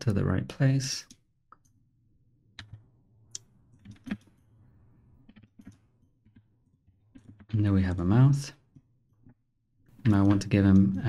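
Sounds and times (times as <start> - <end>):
keyboard and mouse clicks: 2.6 - 4.5, 5.2 - 7.6, 9.2 - 11.0.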